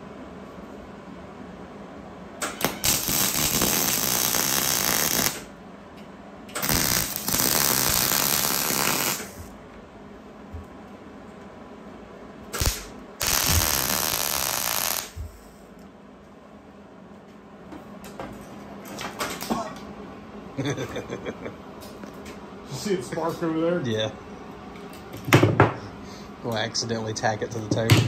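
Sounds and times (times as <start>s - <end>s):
welder sputtering: 2.4s - 5.5s, 6.6s - 9.5s, 12.6s - 15.2s
wire-feed welder arcing on steel: 2.4s - 5.5s, 6.6s - 9.5s, 12.5s - 15.2s.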